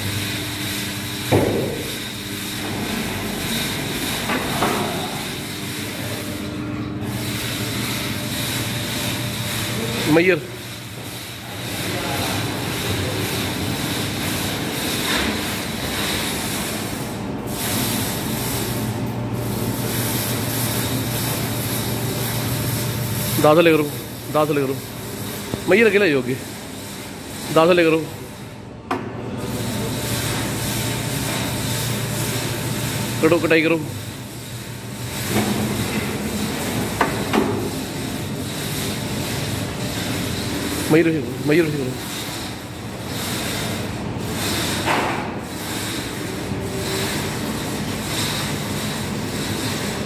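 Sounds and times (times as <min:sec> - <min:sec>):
machine hiss: 0:00.0 - 0:28.5.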